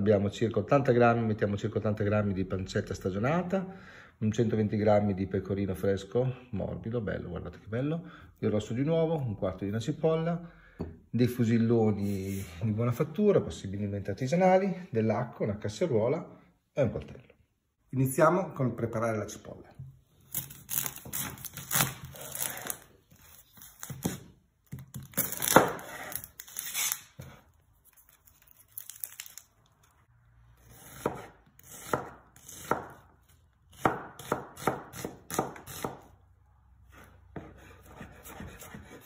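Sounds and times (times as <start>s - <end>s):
knife chopping onion on wood: 23.8s - 26.2s, 30.6s - 36.2s, 36.9s - 39.0s.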